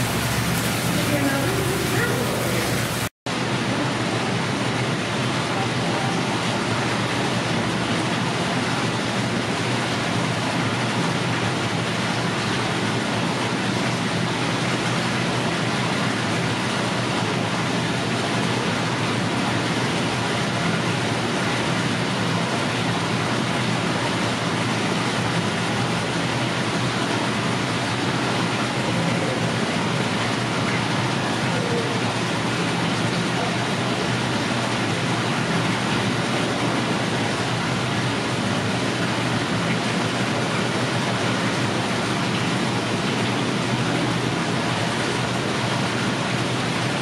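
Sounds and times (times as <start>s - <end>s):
steady rushing noise: 0.0s - 3.1s.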